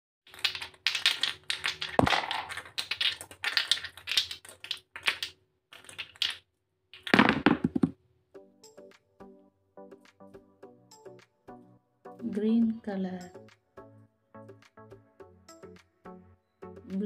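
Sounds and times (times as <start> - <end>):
jars clattering onto paper: 0.3 - 4.2
plastic jars clacking together: 0.3 - 6.4, 7.0 - 8.0.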